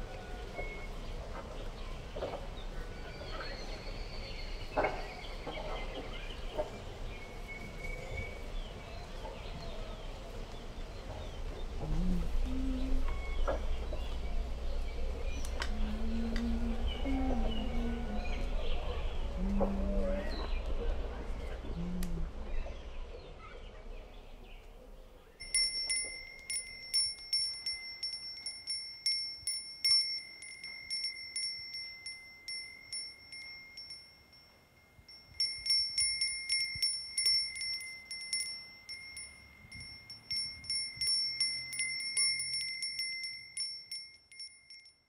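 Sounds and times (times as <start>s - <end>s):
high-pitched metal chime tinkling: 25.4s - 45.0s.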